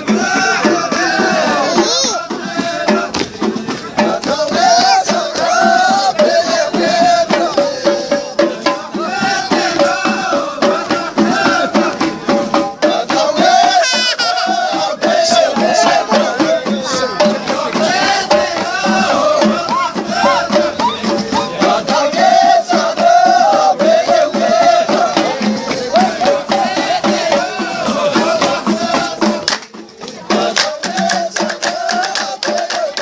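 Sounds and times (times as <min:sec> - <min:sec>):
person singing folk melody: 0:00.0 - 0:08.5, 0:13.2 - 0:18.0
shaken rattles and percussion: 0:00.0 - 0:33.0.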